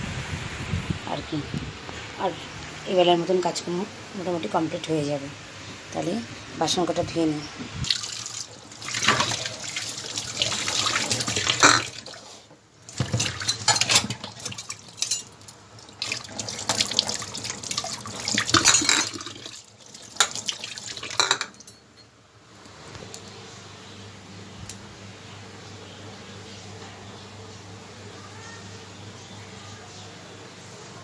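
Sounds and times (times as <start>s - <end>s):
tap water splashing into sink: 7.8s - 12.2s, 16.0s - 21.4s.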